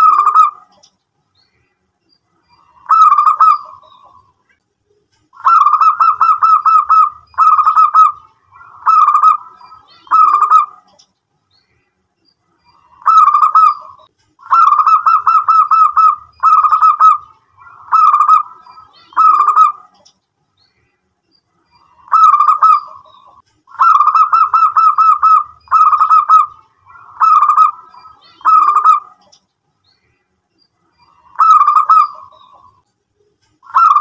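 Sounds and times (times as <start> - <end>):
dove cooing: 0.0 - 0.8, 2.6 - 4.3, 5.4 - 11.0, 12.8 - 20.0, 21.8 - 29.3, 31.1 - 32.8, 33.6 - 34.0.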